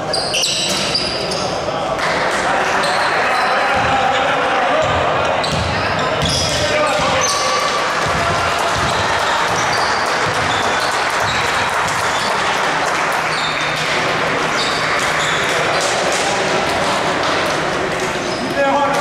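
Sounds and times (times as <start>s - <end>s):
shoe squeaks: 0.0s - 1.7s, 5.4s - 7.6s, 8.8s - 12.4s, 13.2s - 13.8s, 14.5s - 15.5s, 18.2s - 18.6s
crowd noise: 0.0s - 19.0s
basketball bouncing on court: 3.7s - 4.1s, 4.8s - 12.4s.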